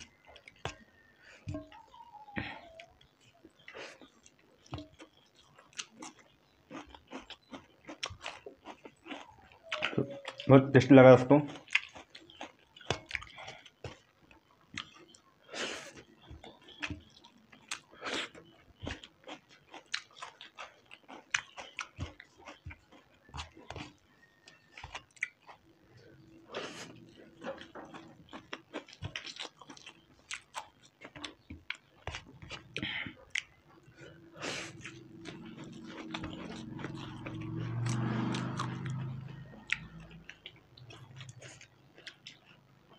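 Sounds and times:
people chewing noodles: 0:00.0 - 0:42.9.

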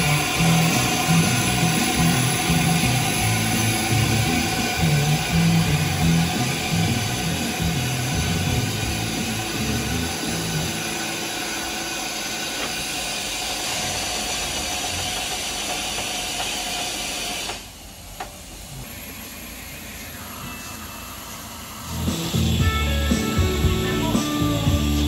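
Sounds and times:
music: 0:00.0 - 0:10.8, 0:21.9 - 0:25.0
steam locomotive hissing: 0:00.0 - 0:25.0.

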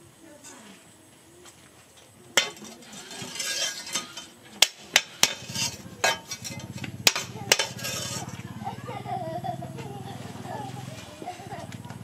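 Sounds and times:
sharp metallic clanks: 0:02.4 - 0:08.5
metal scraping: 0:02.4 - 0:08.6.

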